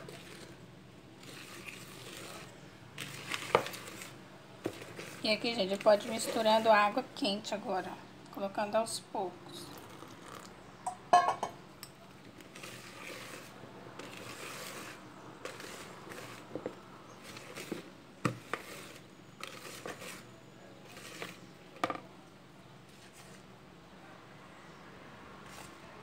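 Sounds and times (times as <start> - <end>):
whisk swishing through batter: 0.0 - 0.6, 1.2 - 7.0, 12.4 - 21.4, 25.4 - 25.9.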